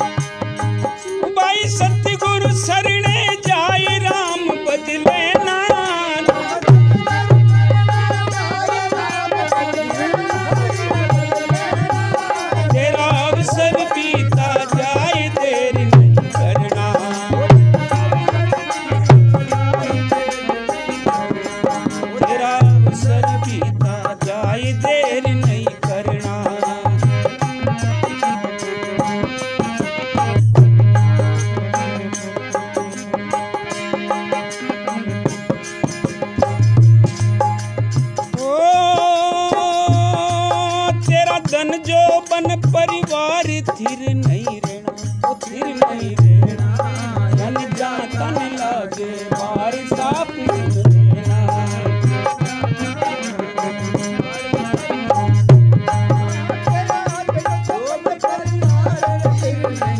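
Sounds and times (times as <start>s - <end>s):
hand drums in steady rhythm: 0.0s - 59.9s.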